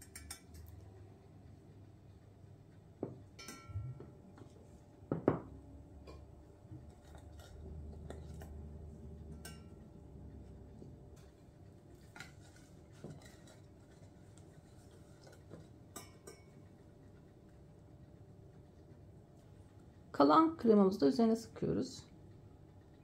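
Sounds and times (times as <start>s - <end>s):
light clinks and knocks of dishes: 3.4s - 4.1s, 9.3s - 9.8s, 14.6s - 16.7s.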